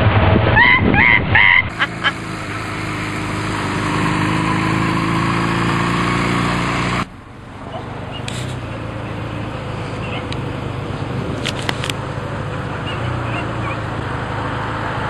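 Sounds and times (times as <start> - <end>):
traffic noise: 0.0 - 15.0
vehicle engines idling: 0.0 - 15.0
sharp clicks: 11.4 - 12.0.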